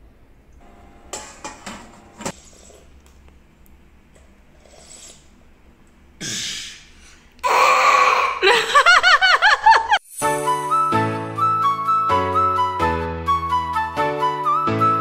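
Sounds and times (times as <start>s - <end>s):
girl slurping from tin: 2.3s - 3.0s, 4.4s - 5.5s
girl giggling: 7.5s - 10.0s.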